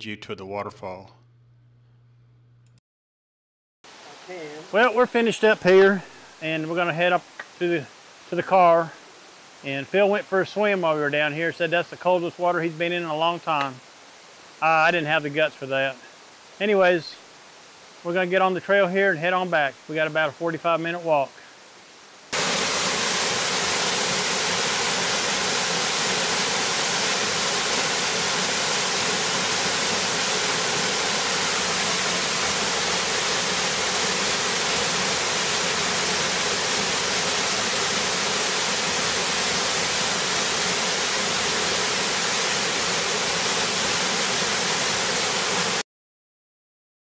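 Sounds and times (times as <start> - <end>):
waterfall rushing: 3.9 - 9.9, 22.3 - 45.8.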